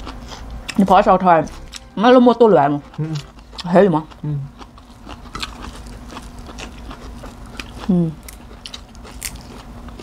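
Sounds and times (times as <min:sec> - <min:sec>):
steady low hum: 0:00.0 - 0:10.0
chewing crunches and clicks: 0:02.8 - 0:10.0
crunch of biting vegetable: 0:04.9 - 0:10.0.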